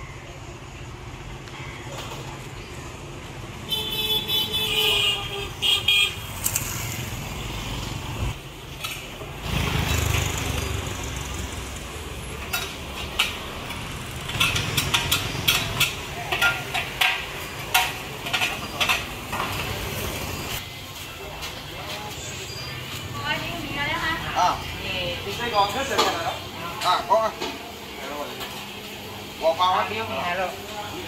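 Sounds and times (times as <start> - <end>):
street traffic: 0.0 - 31.0
vehicle horn tooting: 3.7 - 6.4
vehicle rumbling past: 9.2 - 15.9
metal cookware clinking: 12.4 - 19.8.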